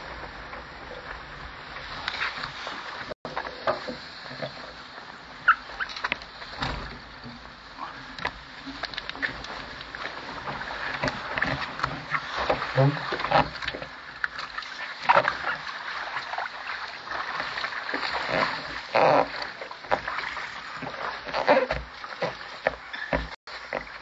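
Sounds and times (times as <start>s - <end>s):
water sloshing against boat hull: 0.0s - 24.0s
loud splashes: 9.2s - 22.6s.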